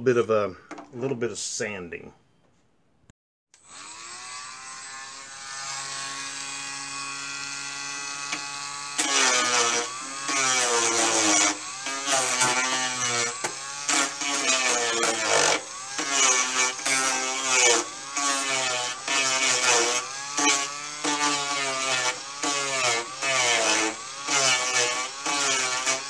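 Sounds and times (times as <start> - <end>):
rotary tool sanding wood: 3.6 - 26.0
rotary tool whining: 3.6 - 26.0.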